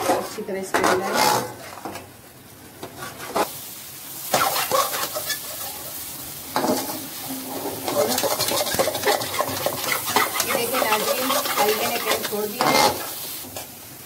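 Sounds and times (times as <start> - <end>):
food sizzling in pan: 2.4 - 14.0
metal spoon scraping pan: 4.3 - 5.8, 6.6 - 13.1.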